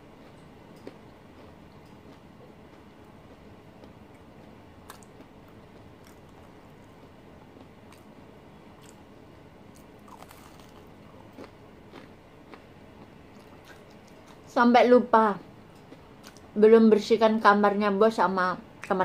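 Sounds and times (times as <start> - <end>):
person chewing crispy food: 0.2 - 14.5.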